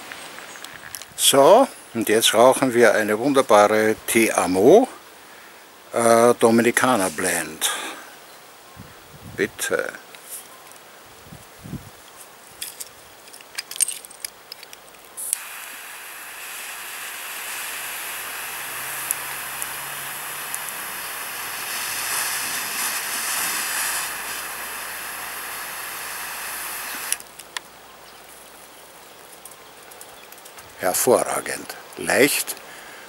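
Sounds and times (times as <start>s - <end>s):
torch lighter flame hissing: 15.2s - 27.5s
lighter clicks: 15.3s - 27.4s.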